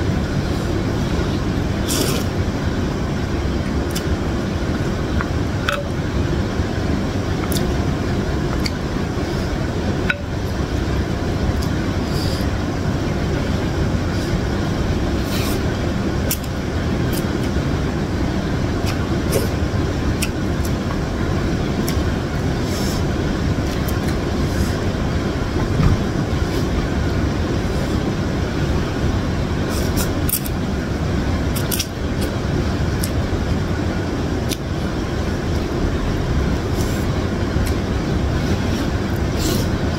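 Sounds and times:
low background rumble: 0:00.0 - 0:39.9
slurping and chewing noodles: 0:01.8 - 0:02.4.

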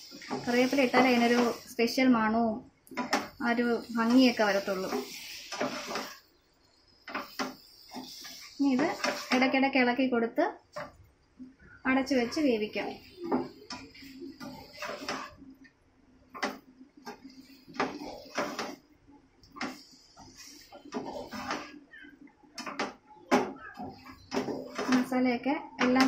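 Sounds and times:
plastic spatula scraping a pan: 0:00.0 - 0:01.8, 0:03.0 - 0:06.3, 0:07.0 - 0:09.7, 0:11.9 - 0:15.6, 0:16.3 - 0:18.9, 0:19.5 - 0:25.1.

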